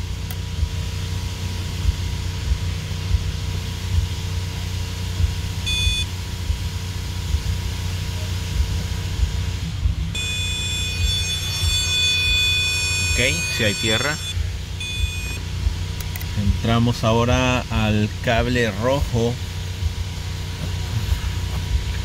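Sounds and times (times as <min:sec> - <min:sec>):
car engine idling: 0:00.0 - 0:22.0
circuit tester beeping: 0:05.6 - 0:06.2, 0:10.1 - 0:16.3.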